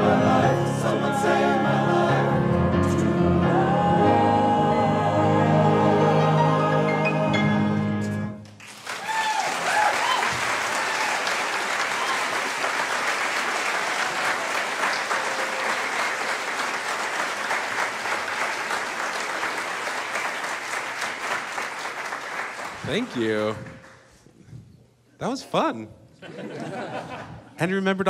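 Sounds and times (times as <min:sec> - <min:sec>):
men's chorus holding a chord: 0:00.0 - 0:07.8
audience applause: 0:08.6 - 0:24.1
audience cheering: 0:08.8 - 0:23.3.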